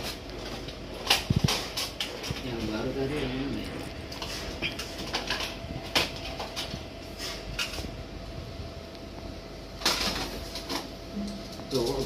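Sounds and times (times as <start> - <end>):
steady hum: 0.0 - 12.0
plastic parts clattering in box: 9.8 - 10.9.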